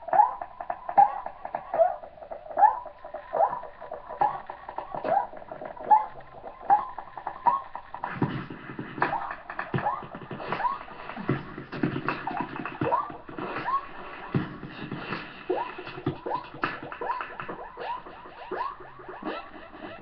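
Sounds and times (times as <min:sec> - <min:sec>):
beatboxing into a microphone: 0:00.0 - 0:20.0
deep kick-drum bass: 0:03.8 - 0:17.6.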